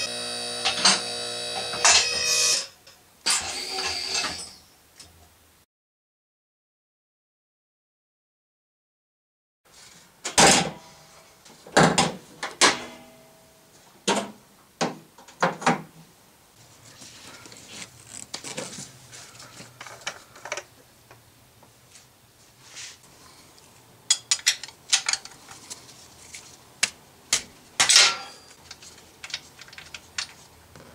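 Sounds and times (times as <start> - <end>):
light clicks and handling noises: 16.8 - 21.2, 23.5 - 30.9.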